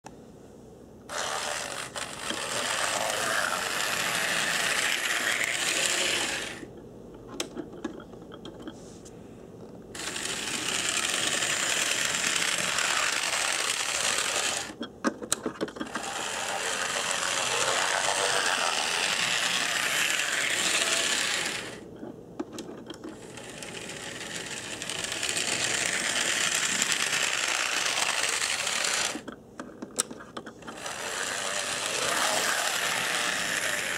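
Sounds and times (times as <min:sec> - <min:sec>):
model train motor whirring: 0:01.1 - 0:06.7, 0:10.0 - 0:14.8, 0:15.8 - 0:21.8, 0:23.2 - 0:29.3, 0:30.6 - 0:33.9.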